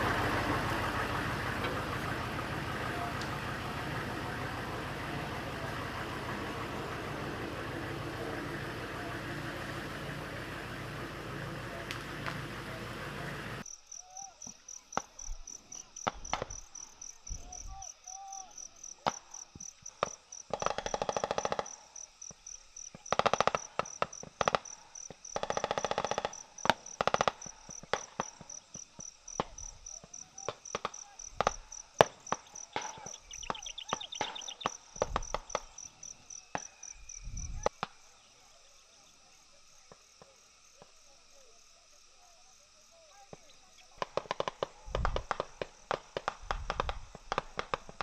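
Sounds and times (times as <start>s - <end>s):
insects chirping: 0.0s - 48.0s
rapid gunfire: 20.0s - 21.9s, 23.1s - 28.6s, 44.0s - 48.0s.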